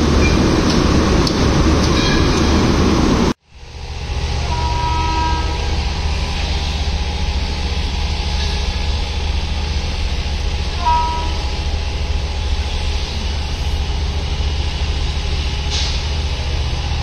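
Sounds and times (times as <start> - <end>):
electric locomotive running: 0.0 - 17.0
steady rumble: 0.0 - 17.0
distant horn toot: 4.4 - 5.8, 10.7 - 11.6.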